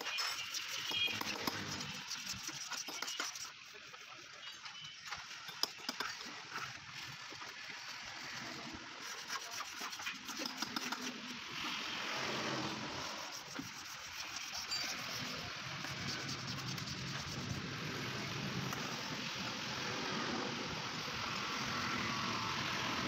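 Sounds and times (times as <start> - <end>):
blade scraping plastic: 0.0 - 3.9, 8.4 - 11.4, 12.3 - 17.6.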